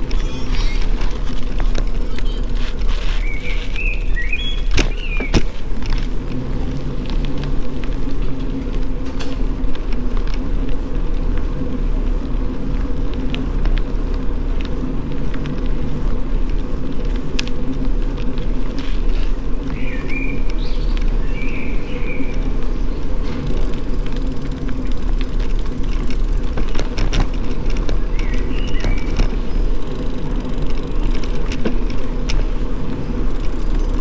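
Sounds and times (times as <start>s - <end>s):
bicycle rolling on pavement: 0.0s - 34.0s.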